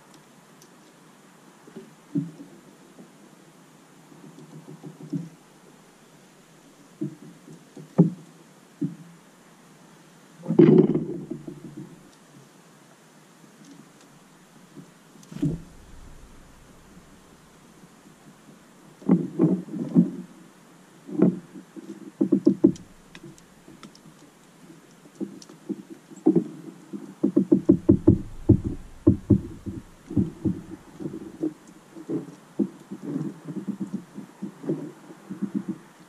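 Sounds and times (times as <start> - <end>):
bird beak tapping on feeder: 22.4 - 23.5, 27.6 - 30.8.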